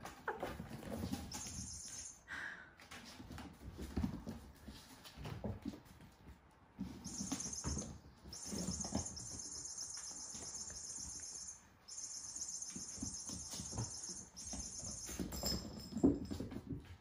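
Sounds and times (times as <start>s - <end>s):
kittens scampering on hard floor: 0.0s - 2.2s, 2.8s - 17.0s
shrill chirping trill: 1.3s - 2.2s, 7.0s - 15.9s.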